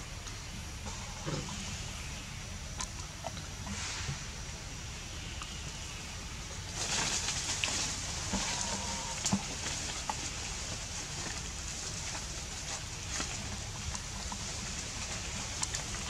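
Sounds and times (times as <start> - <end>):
leaves and twigs rustling: 5.4 - 16.0.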